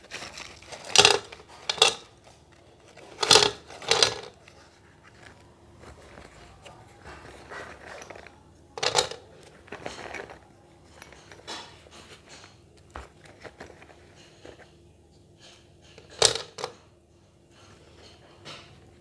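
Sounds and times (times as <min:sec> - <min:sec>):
slate pencils crunching and clicking: 0:00.0 - 0:10.4.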